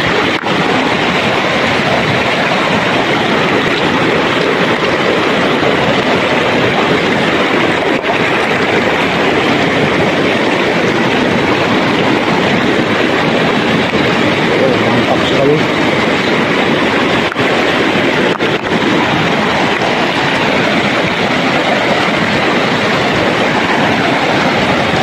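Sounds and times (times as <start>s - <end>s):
river rushing over stones: 0.0s - 25.0s.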